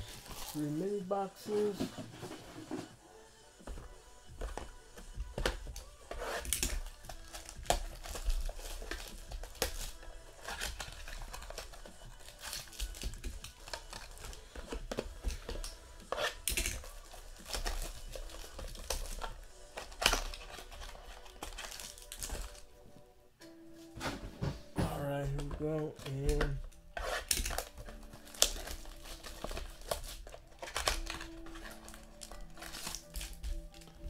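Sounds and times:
plastic wrapping crinkling: 0.0s - 1.8s, 16.3s - 22.7s, 25.3s - 34.0s.

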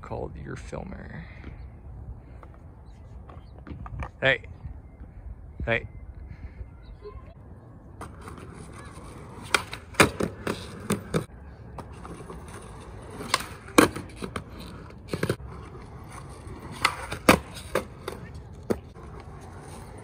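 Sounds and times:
skateboard clacking on concrete: 8.0s - 20.0s.

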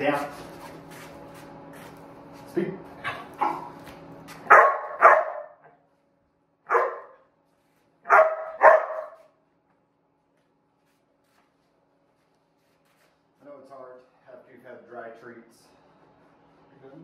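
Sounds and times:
puppy barking sharply: 3.0s - 3.8s, 4.4s - 5.7s, 6.7s - 7.3s, 8.1s - 9.3s.

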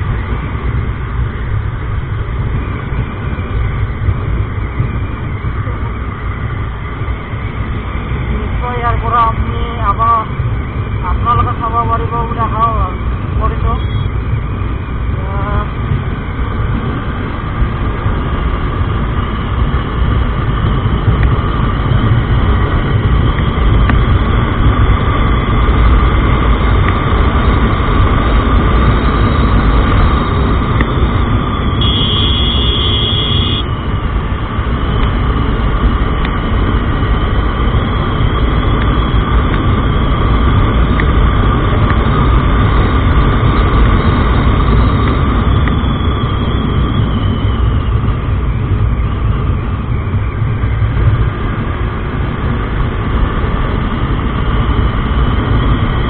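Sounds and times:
wind rushing on microphone: 0.0s - 56.0s
motorcycle engine revving hard: 31.8s - 33.7s
short high tone: 31.8s - 33.7s.

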